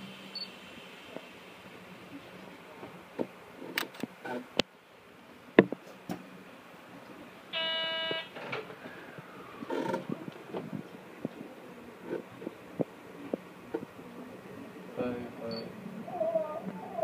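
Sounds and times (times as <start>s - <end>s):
electronic buzzer: 7.6s - 8.3s.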